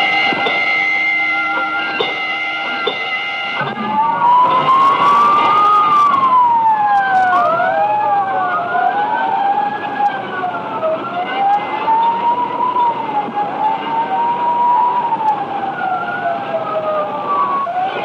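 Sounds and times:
fire engine sirens wailing: 0.0s - 18.0s.

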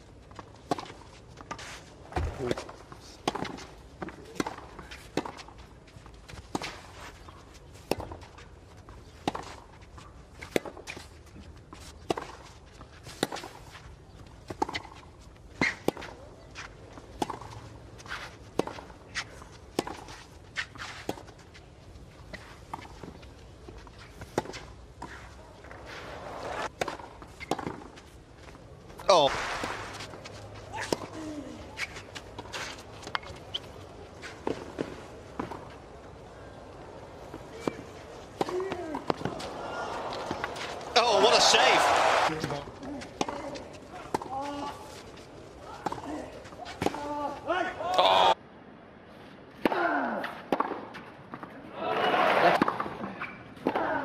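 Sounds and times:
players' footsteps: 0.0s - 48.3s
crowd noise: 35.4s - 43.2s.

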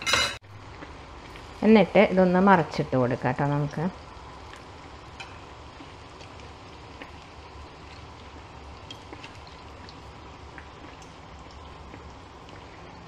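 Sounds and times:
deep-frying sizzle with pops: 0.2s - 13.0s.

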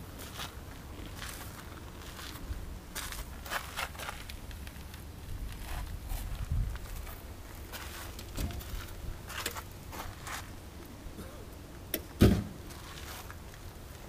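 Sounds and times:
footsteps: 0.1s - 10.6s, 12.3s - 14.0s
dull thump: 12.2s - 12.6s.

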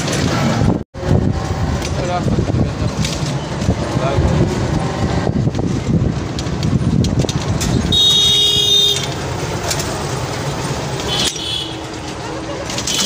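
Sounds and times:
train wheels rumbling and clattering: 0.0s - 13.0s
train horn: 7.9s - 9.1s.

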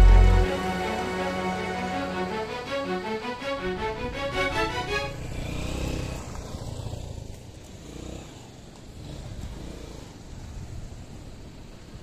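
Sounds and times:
motorcycle engine running: 5.1s - 11.1s.

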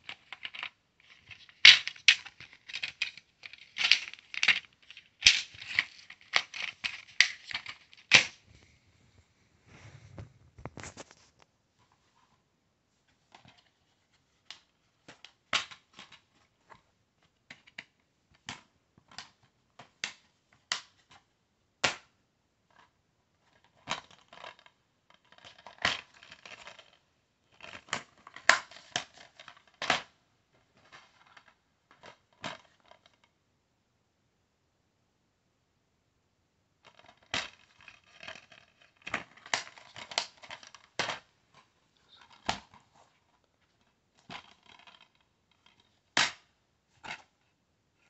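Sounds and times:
plastic cases clicking: 0.0s - 8.4s
crinkly rustling: 0.0s - 12.4s, 36.8s - 46.2s.

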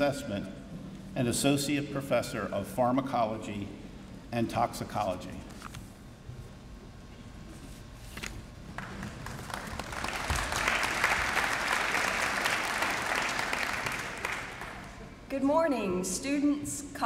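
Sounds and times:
large audience applauding: 8.8s - 15.2s.

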